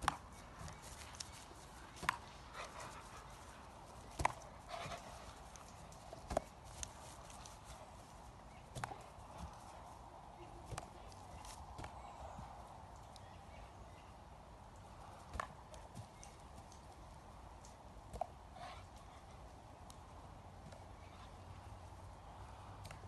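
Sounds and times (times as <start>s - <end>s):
soft scuffling: 0.0s - 12.6s.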